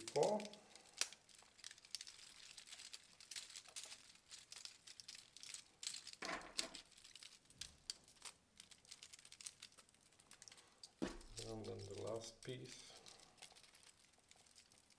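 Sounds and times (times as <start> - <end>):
light plastic rattling: 0.0 - 14.9
plastic links clicking: 0.0 - 14.9.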